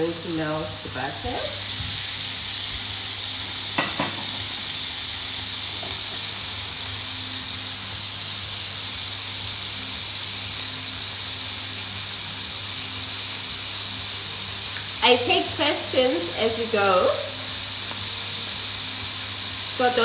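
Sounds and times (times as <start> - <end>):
hot fat frying: 0.0 - 20.0.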